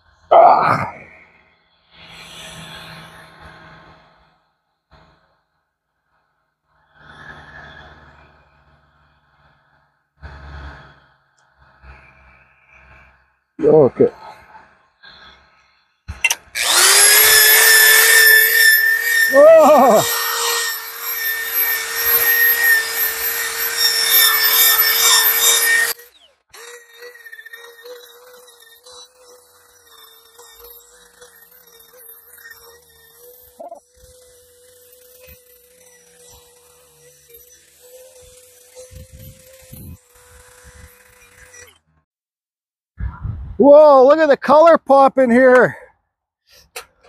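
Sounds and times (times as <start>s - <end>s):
man breathing through a respirator: 6.2s - 16.1s
electric drill motor whine: 6.3s - 13.5s, 14.2s - 42.0s
abrasive wheel scrubbing wood: 16.5s - 42.0s.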